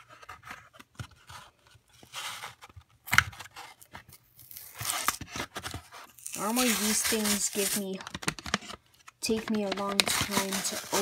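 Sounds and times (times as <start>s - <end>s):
plastic blister pack clicks and rustles: 6.4s - 11.0s.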